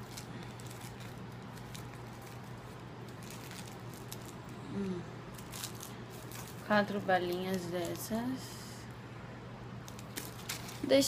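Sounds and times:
plastic candy wrappers crinkling: 0:00.0 - 0:08.4, 0:09.8 - 0:11.0
faint low hum: 0:00.0 - 0:11.0
person humming: 0:04.6 - 0:05.2.

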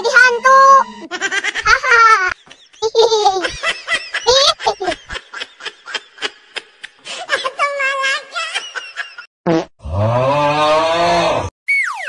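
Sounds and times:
laughter-like comedy bursts: 0:01.0 - 0:06.9.

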